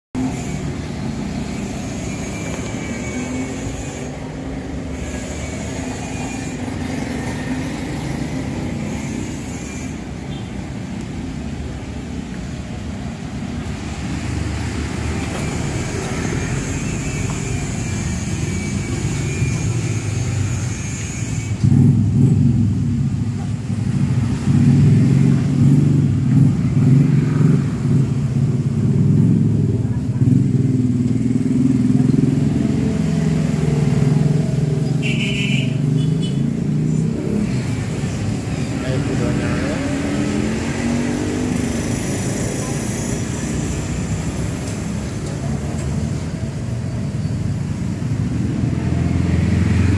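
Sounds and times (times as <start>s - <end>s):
road traffic rumble: 0.1s - 49.9s.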